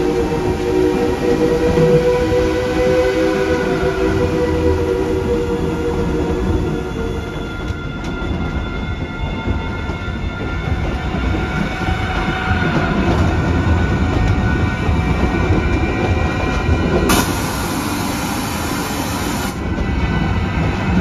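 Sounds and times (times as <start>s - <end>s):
train rumbling on track: 0.0s - 21.0s
loud hiss: 17.1s - 19.6s.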